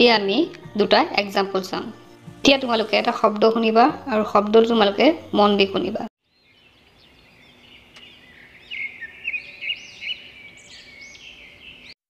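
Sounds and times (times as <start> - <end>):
small bird chirping and twittering: 6.2 - 12.0.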